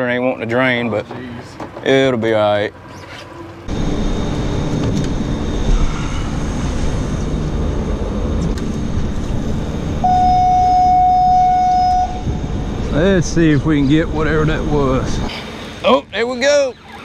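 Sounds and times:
outboard motor rumbling: 0:00.0 - 0:17.0
steady high tone: 0:10.0 - 0:14.4.

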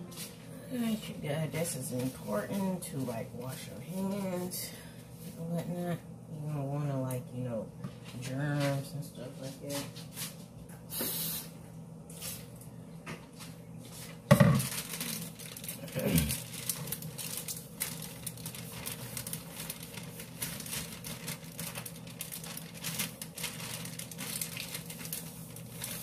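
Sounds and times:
paper bag rustling: 0:13.9 - 0:26.0
dishes knocking on counter: 0:14.3 - 0:14.7.

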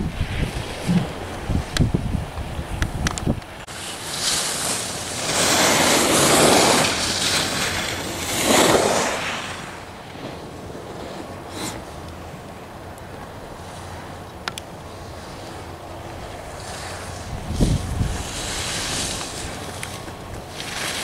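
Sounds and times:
wind buffeting microphone: 0:00.0 - 0:03.7, 0:15.6 - 0:21.0
skis scraping across snow: 0:00.1 - 0:01.8, 0:03.6 - 0:12.1, 0:15.0 - 0:21.0.

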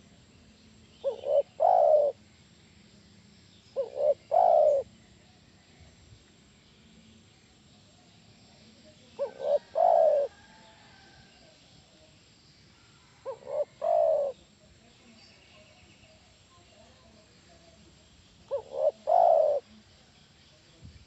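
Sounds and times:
dove cooing: 0:01.0 - 0:02.2, 0:03.8 - 0:04.9, 0:09.2 - 0:10.6, 0:13.2 - 0:14.5, 0:18.5 - 0:19.7.

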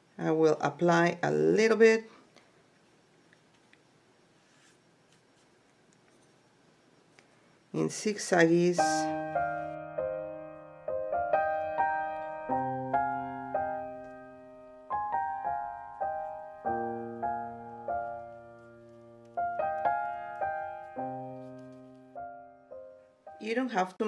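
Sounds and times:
piano music: 0:08.8 - 0:24.0.

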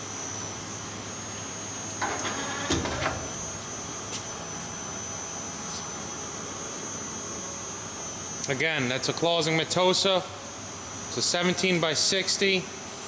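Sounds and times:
high whine: 0:01.8 - 0:09.0.

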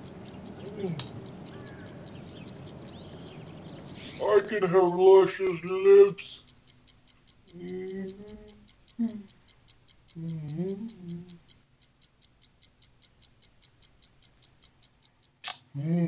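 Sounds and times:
faint fast ticking: 0:00.0 - 0:15.5
person humming: 0:00.6 - 0:01.3, 0:07.5 - 0:09.3, 0:10.1 - 0:11.4, 0:15.7 - 0:16.0.

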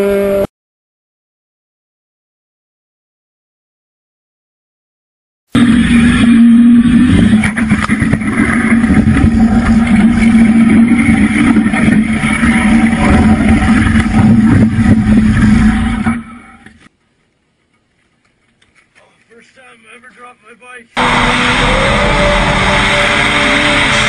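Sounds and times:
motorcycle engine running: 0:05.6 - 0:16.9, 0:21.0 - 0:24.0
road and wind noise: 0:05.6 - 0:16.9, 0:21.0 - 0:24.0.

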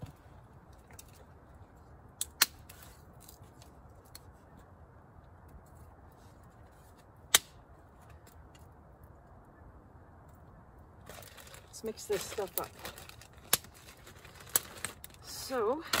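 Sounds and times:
fire popping: 0:00.0 - 0:04.3, 0:07.0 - 0:09.2, 0:11.0 - 0:16.0
campfire crackling: 0:00.0 - 0:09.6, 0:10.2 - 0:16.0.

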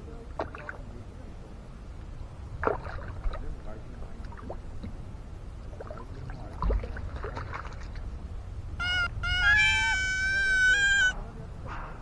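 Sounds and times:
wind rumble: 0:01.1 - 0:12.0
fish splashing on water: 0:02.6 - 0:03.4, 0:05.8 - 0:08.0
cartoon cat meows: 0:08.8 - 0:11.2.

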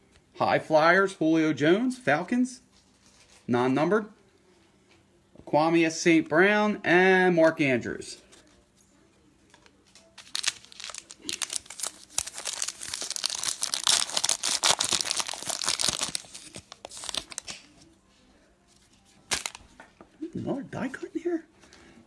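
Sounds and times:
wrapper crinkling: 0:09.5 - 0:17.8, 0:19.3 - 0:19.8.

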